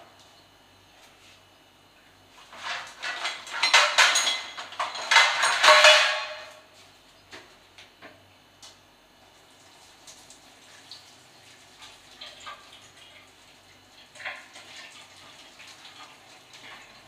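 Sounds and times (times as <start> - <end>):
metal pots clattering: 2.5 - 6.6.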